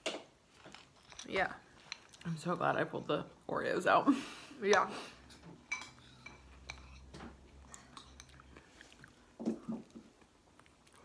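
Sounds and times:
soft chewing: 0.5s - 3.5s, 5.1s - 11.0s
metal spoons scraping bowls: 0.7s - 3.2s, 4.6s - 8.4s.

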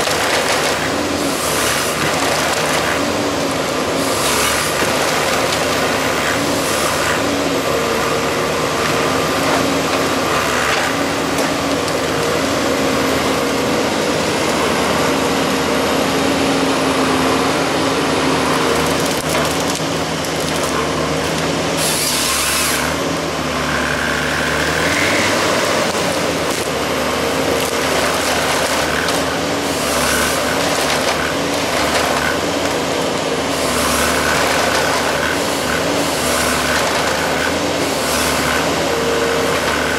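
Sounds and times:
diesel engine and hydraulics: 0.0s - 39.9s
loud saw noise: 0.0s - 39.9s.

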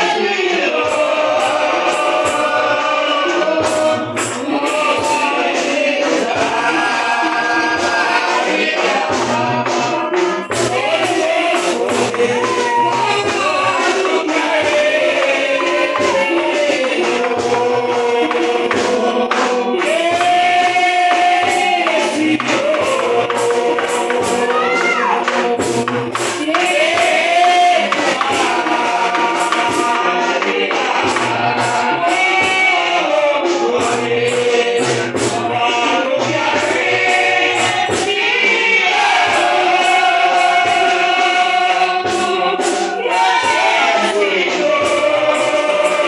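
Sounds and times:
congregation singing: 0.0s - 46.0s
steady percussion beat: 0.0s - 46.0s
man singing through a microphone: 8.9s - 36.7s.

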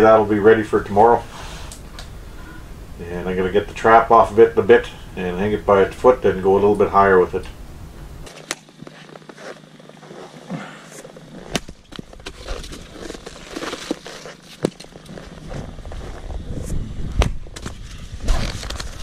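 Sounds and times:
shuffling and handling noise: 8.2s - 16.9s, 17.5s - 19.0s
axe splitting firewood: 8.3s - 15.4s.

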